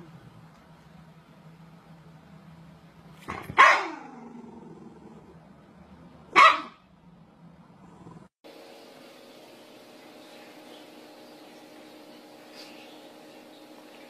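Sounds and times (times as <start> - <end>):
small dog barking: 3.3 - 4.2, 6.3 - 6.8.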